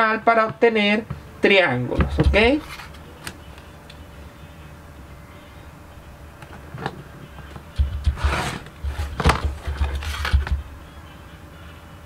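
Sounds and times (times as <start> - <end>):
rotary cutter scraping through fabric: 8.2 - 10.3.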